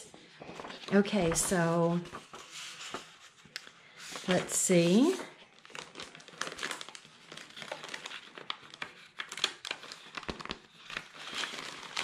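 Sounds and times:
plastic bag crinkling: 4.2s - 12.0s.

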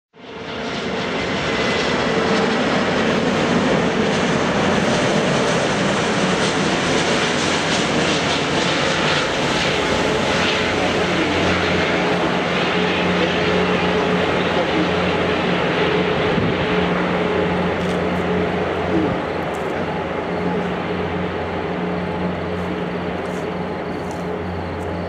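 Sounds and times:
jet engines rushing: 0.2s - 25.0s
faint steady tones: 7.4s - 25.0s.

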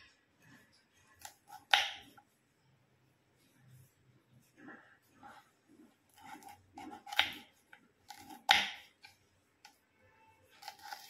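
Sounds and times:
knife cutting on wooden board: 1.2s - 2.2s, 6.1s - 9.2s, 10.6s - 11.0s.

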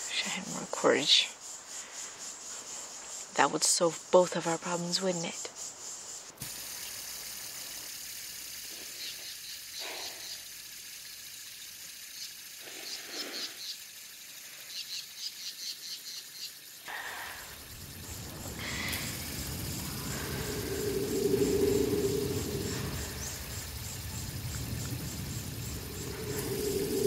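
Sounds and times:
steady hiss: 0.0s - 27.0s
small birds trilling: 11.6s - 27.0s
low rumble: 17.4s - 27.0s.

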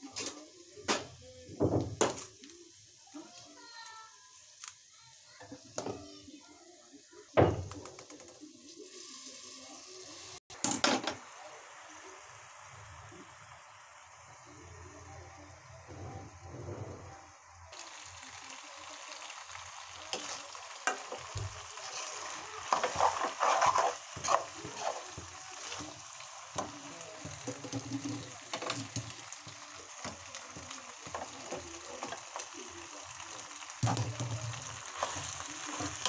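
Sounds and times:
food sizzling in pan: 0.0s - 36.0s
metal spoon scraping pan: 21.8s - 25.8s.

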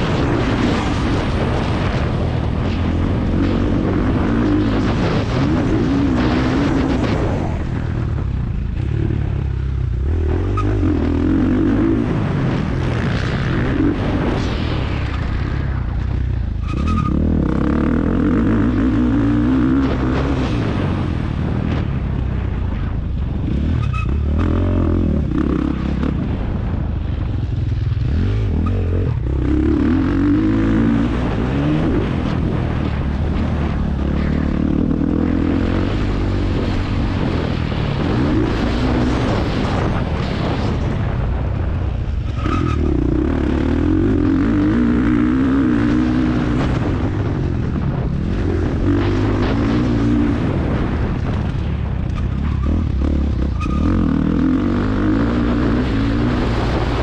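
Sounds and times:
motocross bike engine revving: 0.0s - 8.0s, 8.6s - 14.5s, 16.6s - 21.5s, 23.5s - 26.5s, 27.7s - 41.2s, 42.3s - 51.4s, 52.3s - 57.0s.

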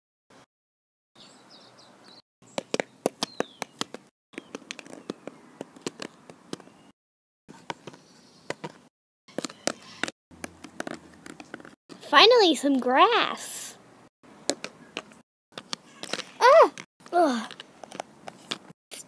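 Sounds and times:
bird chirping: 1.2s - 6.9s, 7.6s - 10.0s
hard taps on concrete: 2.5s - 6.7s.

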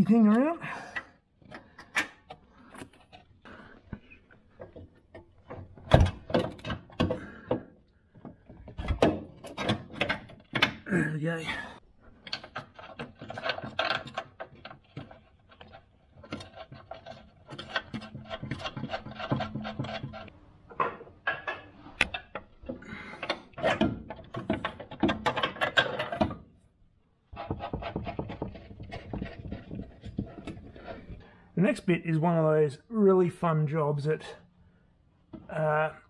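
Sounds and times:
hands clicking and knocking on parts: 0.9s - 10.9s, 12.2s - 26.6s, 27.3s - 31.2s.

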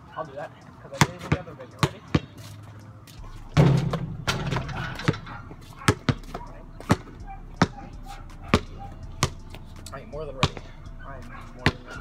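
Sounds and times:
basketball bouncing: 0.9s - 2.3s, 3.3s - 10.8s, 11.5s - 12.0s.

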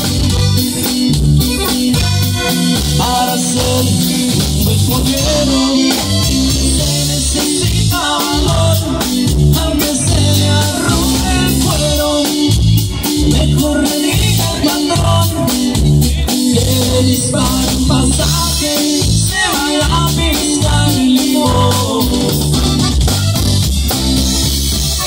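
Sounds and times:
accordion: 0.0s - 25.0s
bass: 0.0s - 25.0s
drums: 0.0s - 25.0s
man singing into microphone: 2.7s - 22.6s.

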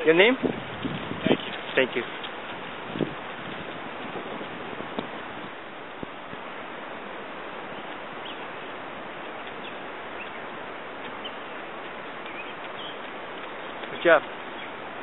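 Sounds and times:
outdoor ambient hiss: 0.0s - 15.0s
faint bird chirps: 12.3s - 13.0s.

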